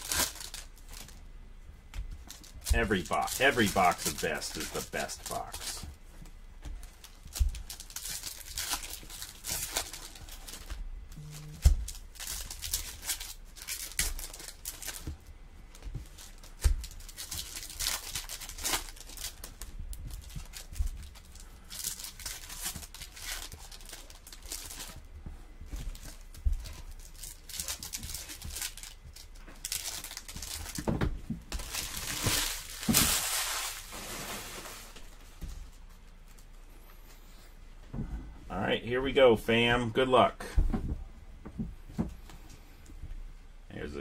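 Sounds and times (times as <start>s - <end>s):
foil wrappers tearing and crinkling: 0.0s - 1.2s, 2.3s - 5.9s, 6.8s - 25.0s, 25.7s - 35.2s
cards being handled: 2.0s - 5.9s.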